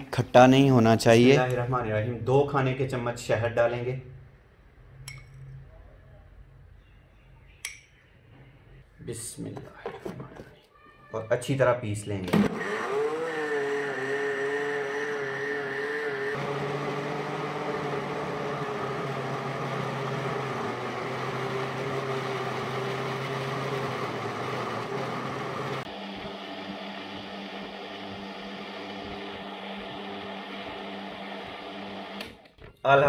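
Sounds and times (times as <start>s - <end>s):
electric blender running: 12.3s - 32.4s.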